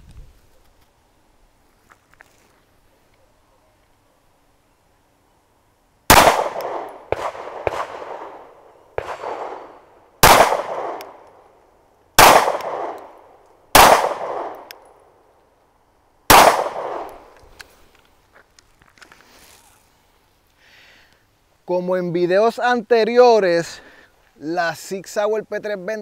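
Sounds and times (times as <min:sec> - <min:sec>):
pistol shots with echoing tail: 0:06.1 - 0:11.2, 0:12.2 - 0:14.7, 0:16.3 - 0:17.2.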